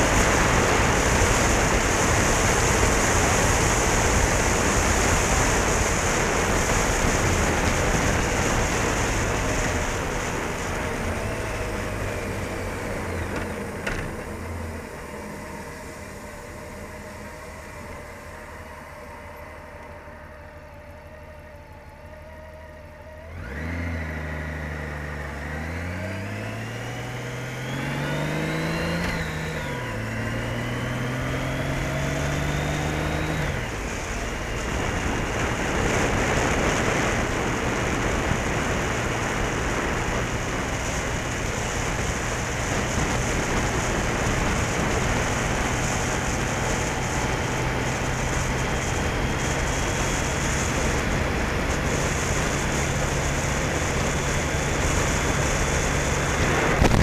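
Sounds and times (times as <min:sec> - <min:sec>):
wind rush on microphone: 0:00.0 - 0:12.4, 0:31.5 - 0:57.0
motorcycle engine: 0:00.0 - 0:57.0.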